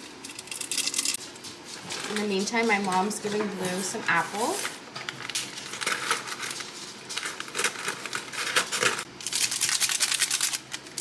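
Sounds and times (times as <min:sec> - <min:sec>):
paper wrap crinkling: 0:00.5 - 0:11.0.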